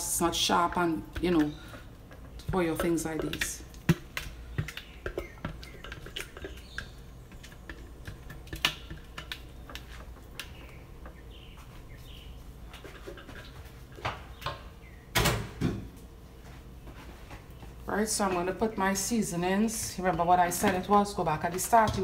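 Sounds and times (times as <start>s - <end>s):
spatula scraping plastic bowl: 1.2s - 10.1s.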